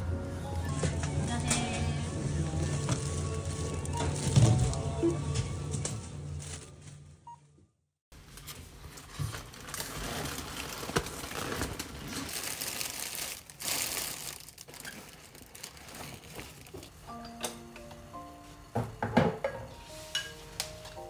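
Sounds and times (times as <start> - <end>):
plastic packaging crinkling: 2.5 - 4.9, 8.9 - 17.0.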